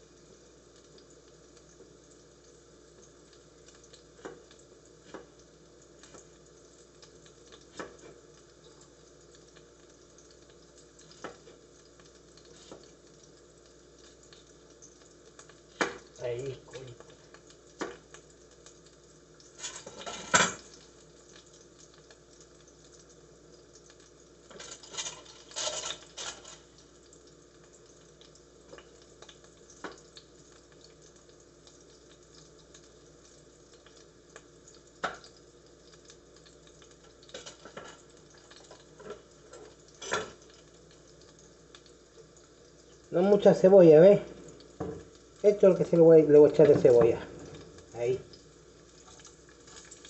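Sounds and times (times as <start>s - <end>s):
sausages sizzling in a pan: 0.0s - 50.0s
kitchen utensils clattering: 19.6s - 20.6s, 24.5s - 26.6s.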